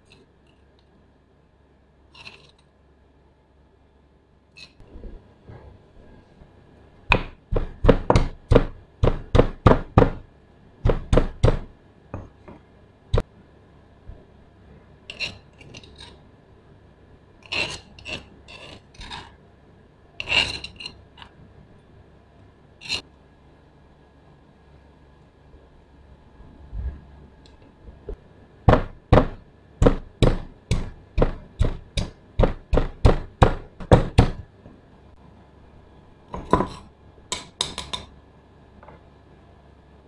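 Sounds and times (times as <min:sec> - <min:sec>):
scraping and clinking against stone: 0:02.2 - 0:02.6, 0:15.1 - 0:16.2, 0:17.4 - 0:19.4, 0:20.2 - 0:21.3
pestle pounding in stone mortar: 0:07.1 - 0:11.7, 0:28.7 - 0:34.4.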